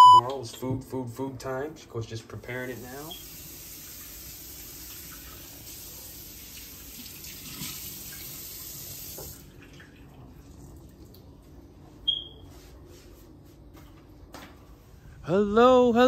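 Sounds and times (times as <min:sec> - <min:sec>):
short high-pitched beep: 0:00.0 - 0:00.3
tap running into sink: 0:09.1 - 0:09.4.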